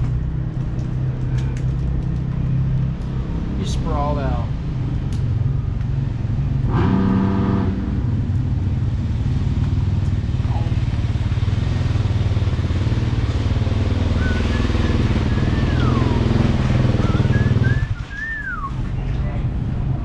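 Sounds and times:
motorcycle engines rumbling: 0.0s - 20.0s
person whistling: 14.2s - 18.7s.

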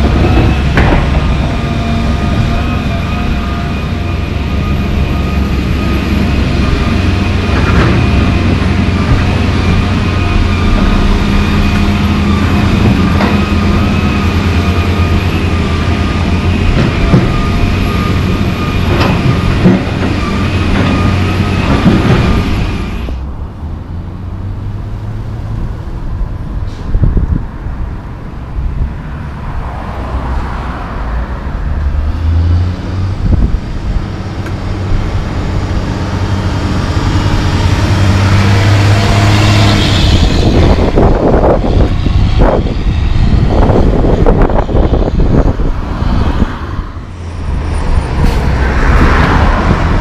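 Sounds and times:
excavator diesel engine whining: 0.0s - 24.0s, 30.9s - 50.0s
wind noise: 25.9s - 30.2s, 32.8s - 50.0s.

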